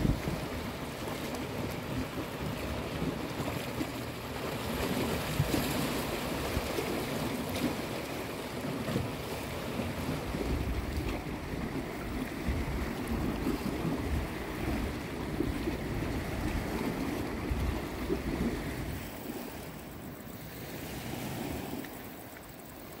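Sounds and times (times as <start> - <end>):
wind buffeting microphone: 0.0 - 0.8, 9.7 - 19.5
sea waves on rocky shore: 0.0 - 23.0.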